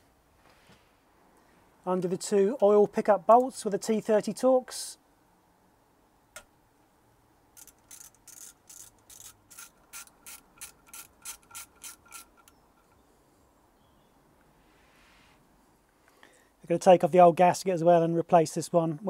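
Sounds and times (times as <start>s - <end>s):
ratchet clicking: 7.6s - 13.0s.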